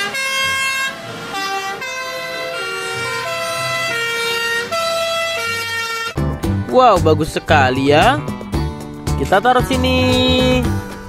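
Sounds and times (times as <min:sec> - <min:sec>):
fire engine two-tone sirens: 0:00.0 - 0:06.3.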